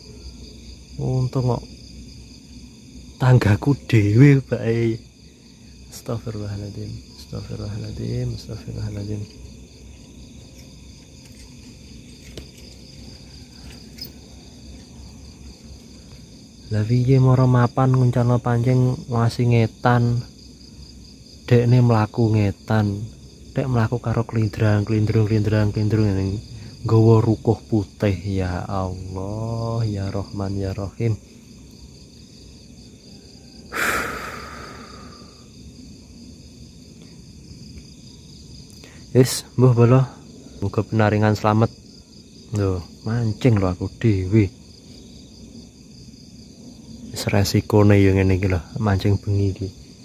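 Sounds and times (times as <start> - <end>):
crickets chirping: 0.0 - 50.0
breathy hiss: 33.6 - 35.8, 38.7 - 39.2.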